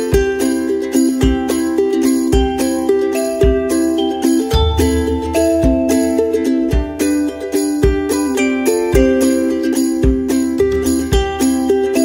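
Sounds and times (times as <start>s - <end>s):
melody over steady beat: 4.4s - 7.3s
deep thump: 4.5s - 7.1s.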